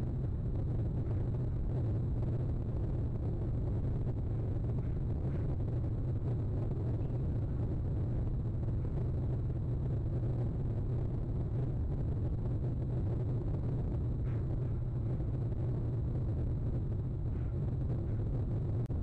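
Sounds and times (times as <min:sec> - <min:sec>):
steady low rumble: 0:00.0 - 0:19.0.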